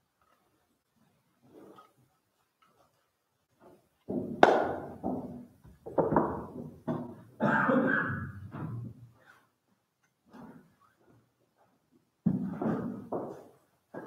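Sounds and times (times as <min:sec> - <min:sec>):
knocks and thuds on wood: 0:04.1 - 0:07.2, 0:12.2 - 0:14.0.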